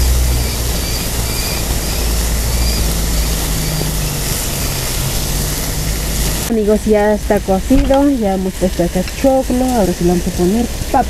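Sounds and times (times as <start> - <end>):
bird chirping: 0.0 - 6.2
beef sizzling on hot stone: 0.0 - 11.0
low rumble: 0.0 - 11.0.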